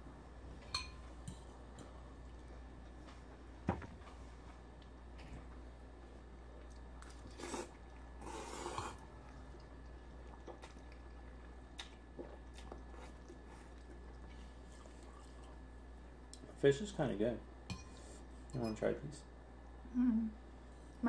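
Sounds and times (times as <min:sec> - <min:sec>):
quiet chewing: 0:06.4 - 0:16.6
noodle slurp: 0:07.0 - 0:11.2.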